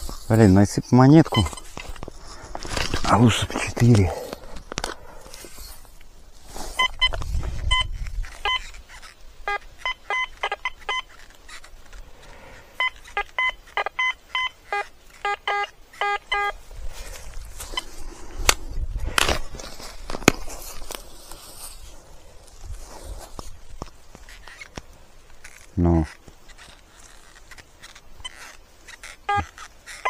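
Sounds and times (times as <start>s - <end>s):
metal detector beeps: 1.2s - 1.8s, 6.8s - 11.6s, 12.8s - 16.6s, 27.2s - 30.0s.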